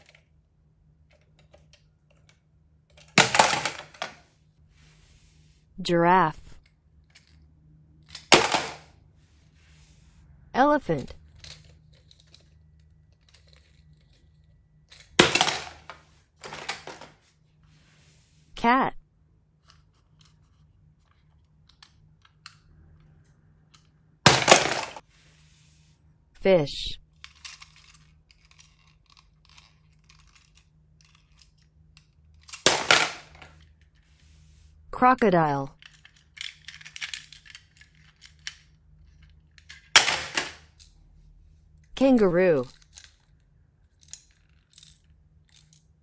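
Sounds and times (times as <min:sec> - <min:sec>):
plastic toys clicking and rubbing: 0:00.0 - 0:00.4, 0:01.0 - 0:05.5, 0:06.6 - 0:08.7, 0:11.0 - 0:18.3, 0:19.5 - 0:25.5, 0:27.0 - 0:34.7, 0:35.8 - 0:40.9, 0:41.9 - 0:46.0
plastic toy clattering in basin: 0:01.1 - 0:04.2, 0:11.3 - 0:17.2, 0:24.3 - 0:25.0, 0:35.8 - 0:40.6.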